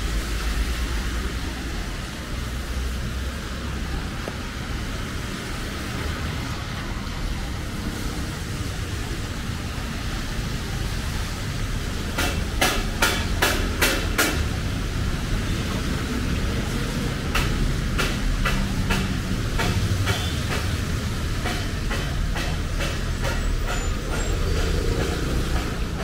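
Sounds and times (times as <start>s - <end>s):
city street traffic rumble: 0.0s - 26.0s
sharp knocks: 12.1s - 14.6s, 17.3s - 26.0s.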